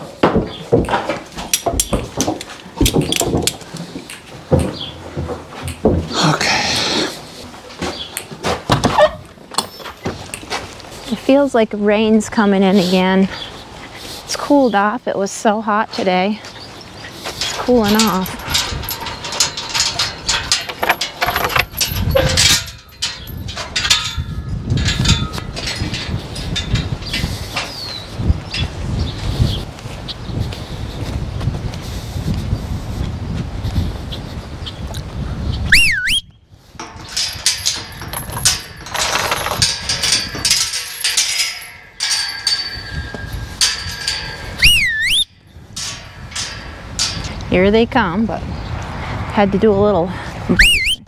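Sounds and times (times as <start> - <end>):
metal gate rattling and clanking: 0.0 - 7.4, 8.0 - 10.6, 16.0 - 29.5, 36.8 - 48.3.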